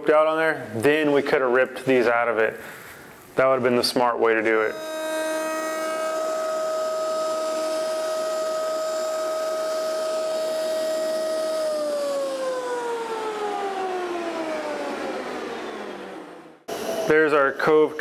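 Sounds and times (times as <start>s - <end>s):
router motor whining: 4.7s - 17.5s.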